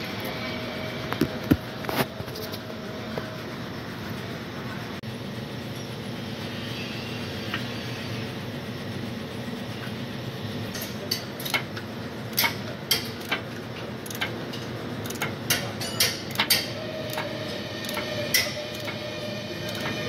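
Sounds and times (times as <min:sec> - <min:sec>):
socket ratchet clicking: 0:14.0 - 0:14.4, 0:15.0 - 0:15.4.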